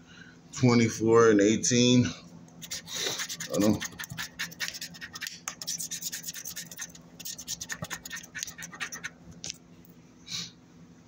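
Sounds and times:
scratching lottery ticket: 2.6 - 9.2.

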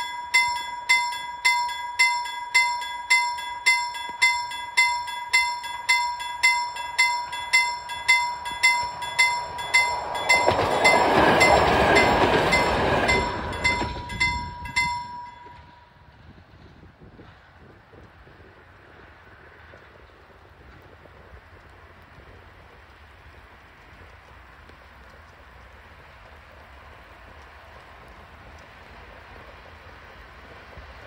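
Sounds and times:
level crossing bell ringing: 0.0 - 15.9
train passing: 0.0 - 31.0.

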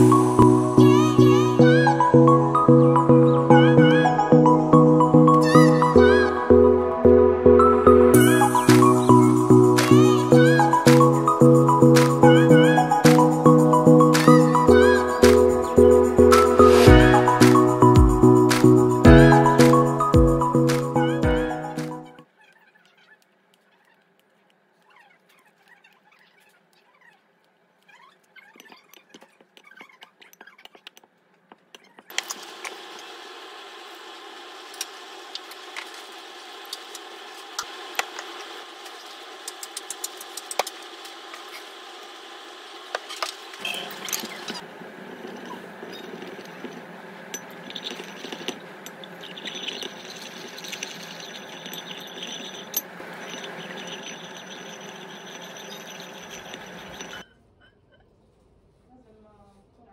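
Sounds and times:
electric stirrer whirring: 32.1 - 57.2
faint handling sounds: 43.6 - 59.9
clicks and rattles: 45.2 - 57.3.

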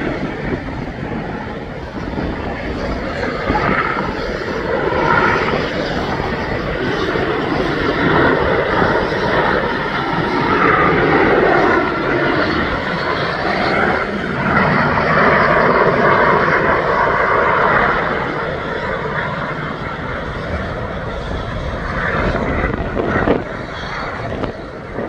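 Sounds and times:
helicopter flying: 0.0 - 25.0.

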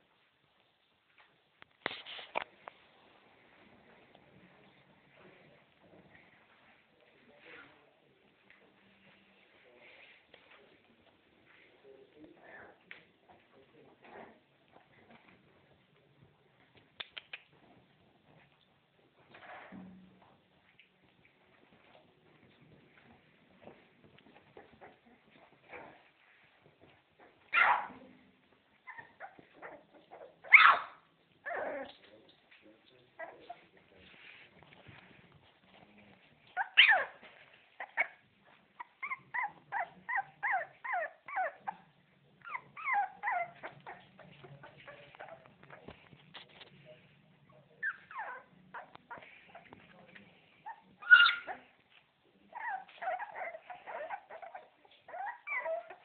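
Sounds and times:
puppy yapping: 27.5 - 28.0, 28.9 - 32.0, 50.7 - 51.6
puppy whimpering and yipping: 28.8 - 32.0, 36.5 - 37.2, 37.8 - 41.8, 42.4 - 45.9, 47.8 - 49.7, 50.7 - 51.7, 52.5 - 56.0
puppy squealing: 28.9 - 32.0, 36.6 - 37.2, 50.7 - 51.6, 52.5 - 56.0.

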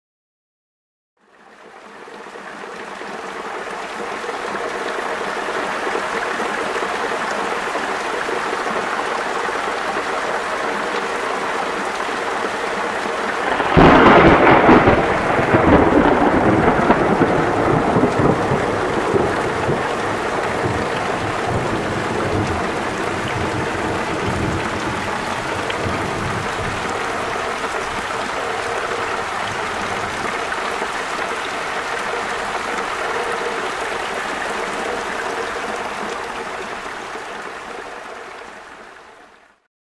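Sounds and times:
steady rain: 1.2 - 39.7
thunder clap and rumble: 13.1 - 30.4.

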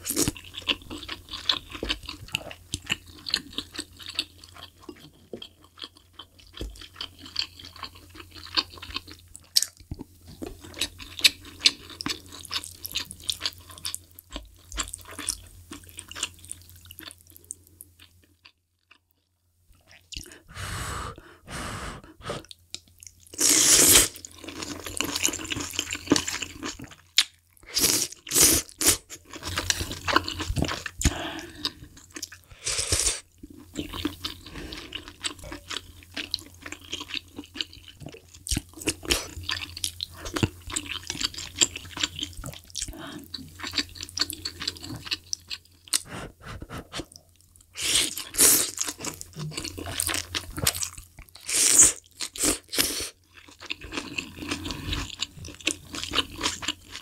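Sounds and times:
wet crunchy chewing: 47.8 - 57.0.

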